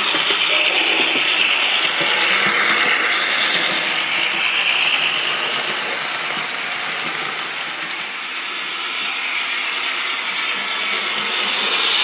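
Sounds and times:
model train motors whirring: 0:00.0 - 0:12.0.

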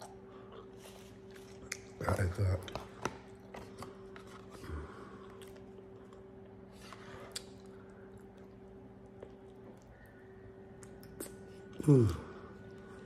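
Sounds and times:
steady low hum: 0:00.0 - 0:13.0
faint chewing: 0:02.6 - 0:13.0.

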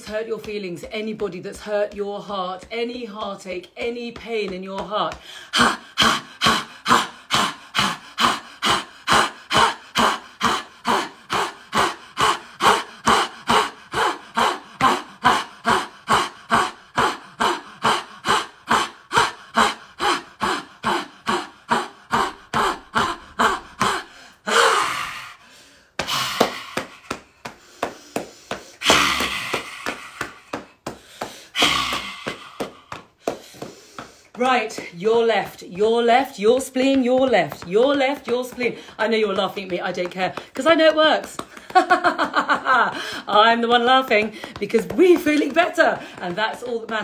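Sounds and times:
woman's forceful ha exhalations: 0:05.1 - 0:35.0, 0:38.6 - 0:39.0, 0:42.9 - 0:43.4, 0:44.1 - 0:44.6, 0:45.8 - 0:46.6
heavy breathing: 0:05.1 - 0:35.2, 0:37.6 - 0:39.1, 0:41.3 - 0:43.5, 0:44.1 - 0:44.6, 0:45.2 - 0:46.8.

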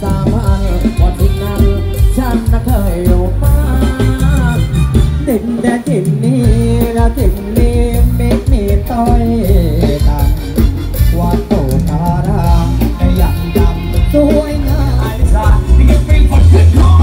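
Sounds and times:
heavy bass beat: 0:00.0 - 0:17.0
loud band music with singer: 0:00.0 - 0:17.0.

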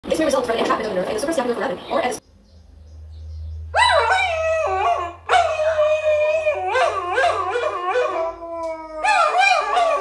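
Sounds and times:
dogs howling through phone speaker: 0:03.8 - 0:10.0.

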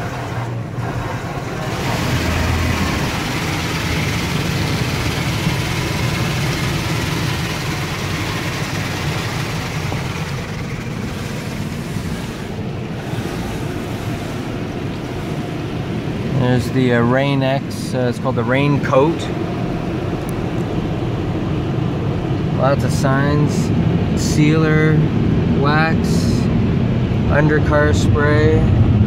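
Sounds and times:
water spraying: 0:00.0 - 0:16.0
car wash brushes scrubbing: 0:00.0 - 0:16.4
low rumble: 0:00.0 - 0:22.9, 0:25.0 - 0:29.0.

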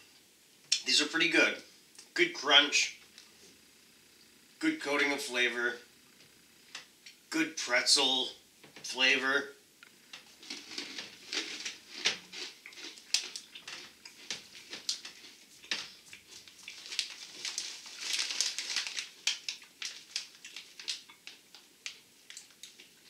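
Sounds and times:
pretzels crunching: 0:10.2 - 0:23.0
snack bag crinkling: 0:10.2 - 0:23.0.

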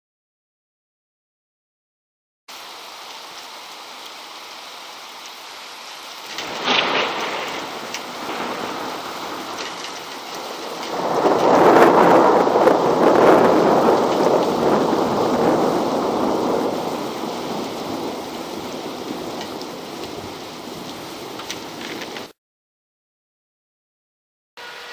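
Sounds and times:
heavy rain: 0:02.5 - 0:22.4
thunder rumbling: 0:06.2 - 0:22.3
thunder crack: 0:06.3 - 0:22.3.

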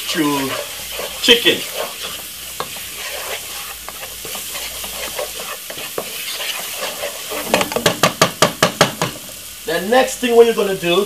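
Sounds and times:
spoon scraping a pan: 0:00.0 - 0:08.4
onions sizzling in a frying pan: 0:00.0 - 0:11.0.

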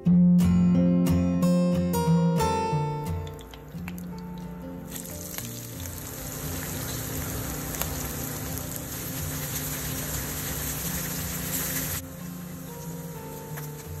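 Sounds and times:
shallots sizzling in hot oil: 0:03.2 - 0:14.0.

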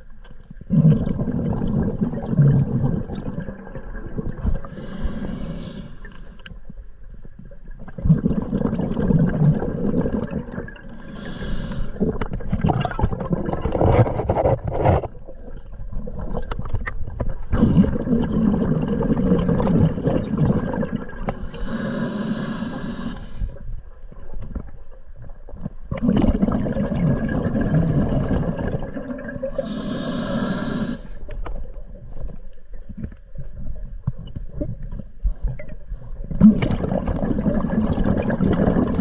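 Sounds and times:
exhaled air bubbling underwater: 0:00.0 - 0:39.0
regulator inhalation hiss: 0:04.6 - 0:06.4, 0:11.0 - 0:12.1, 0:21.4 - 0:23.6, 0:29.6 - 0:31.2.

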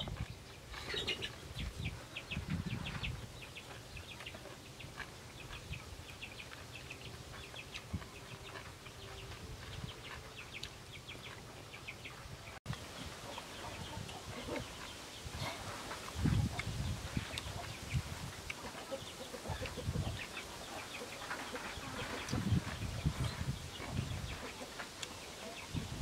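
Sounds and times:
small birds chirping: 0:00.0 - 0:26.0
soft chewing: 0:03.4 - 0:12.0.

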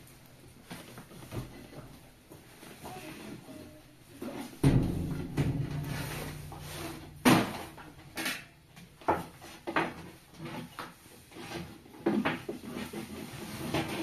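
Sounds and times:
irregular knocks and bumps: 0:04.6 - 0:10.0.

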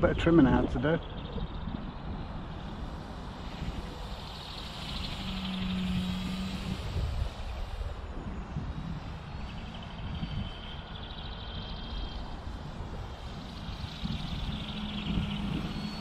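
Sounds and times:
electric motor and propeller whine: 0:00.0 - 0:16.0
wind rumble on microphone: 0:00.0 - 0:16.0.

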